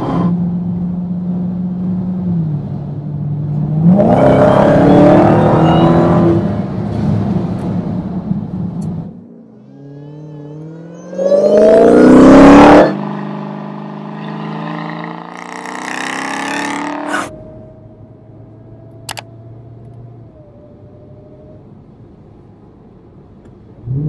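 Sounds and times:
car engine accelerating hard: 8.9s - 21.4s.

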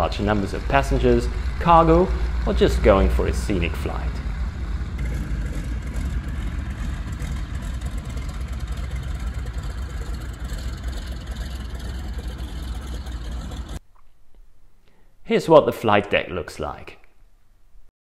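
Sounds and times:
propeller plane engines rumbling: 0.0s - 13.8s.

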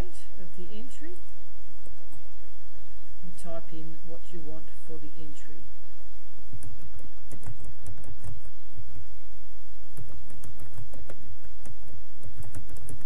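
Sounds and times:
typing on computer keyboard: 6.6s - 8.5s, 10.0s - 13.0s.

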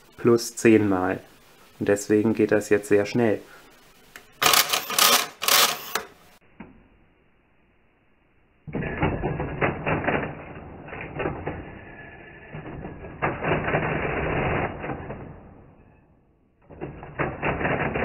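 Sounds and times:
mechanical calculator clattering: 4.4s - 6.1s.

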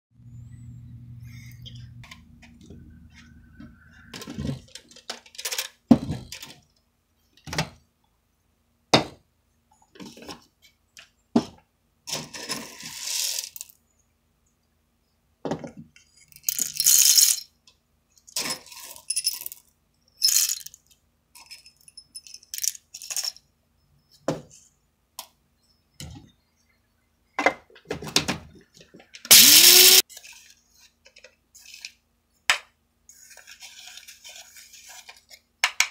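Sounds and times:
coffee beans scooped into metal bowl: 12.1s - 13.7s, 33.1s - 35.3s.

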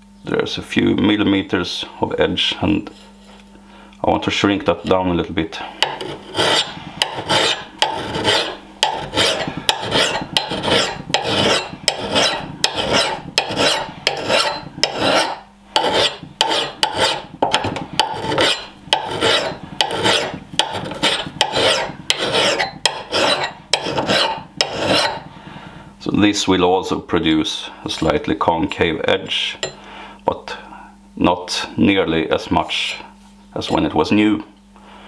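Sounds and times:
file rasping on steel: 5.8s - 25.3s.

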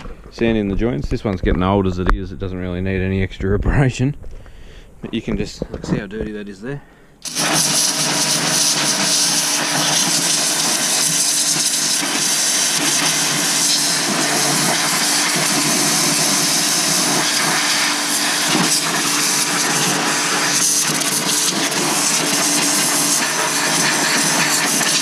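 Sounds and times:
pressure washer water jet hissing: 7.2s - 25.0s
pump humming: 7.2s - 25.0s.

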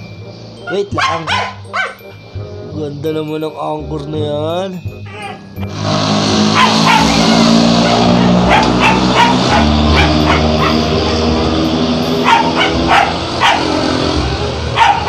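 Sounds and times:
dog barking: 0.7s - 2.1s, 6.6s - 11.4s, 12.2s - 14.0s, 14.7s - 15.0s.

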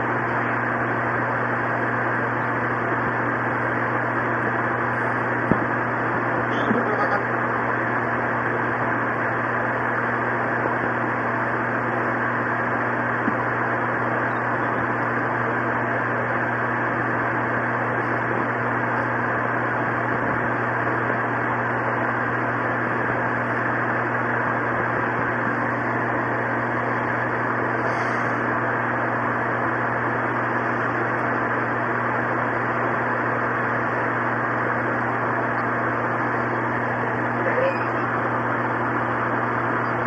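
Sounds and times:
low hum: 0.0s - 40.0s.

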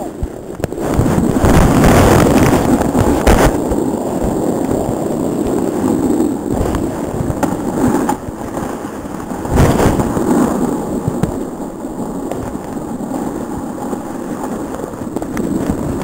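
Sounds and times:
snowboard scraping over snow: 0.0s - 16.0s.

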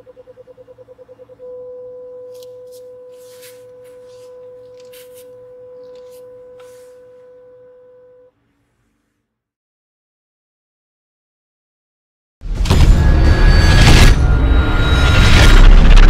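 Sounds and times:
parking sensor continuous beep: 0.0s - 8.3s
faint rustles and clicks: 2.2s - 7.2s.

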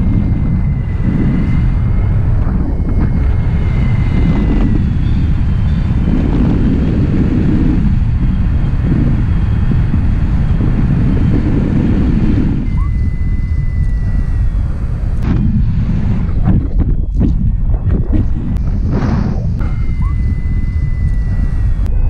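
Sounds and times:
wind buffeting microphone: 0.0s - 22.0s
faint high tone: 12.6s - 14.7s, 19.6s - 22.0s.

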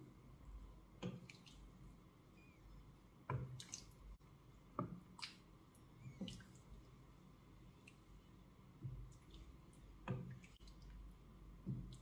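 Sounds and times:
stew stirred with wooden spoon: 3.1s - 12.0s.

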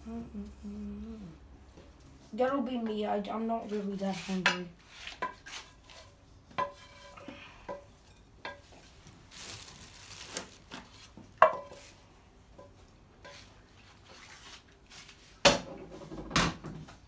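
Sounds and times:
spatula scraping frying pan: 3.6s - 7.3s.

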